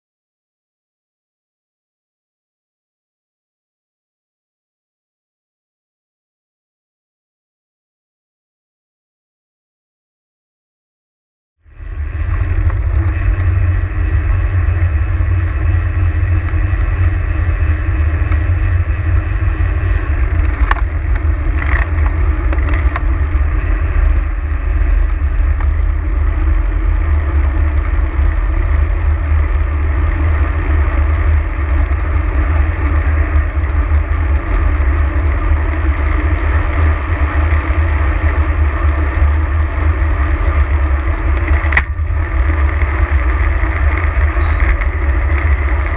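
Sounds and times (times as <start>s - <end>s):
wind noise on microphone: 11.7s - 45.9s.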